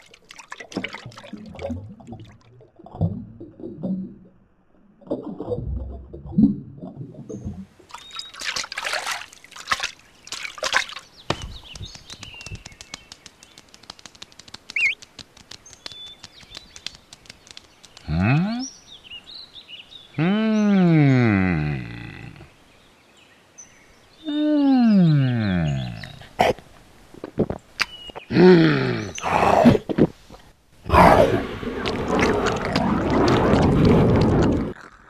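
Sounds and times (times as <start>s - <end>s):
scattered clicks: 11.7s - 18.1s
faint bird chirps: 14.7s - 15.0s.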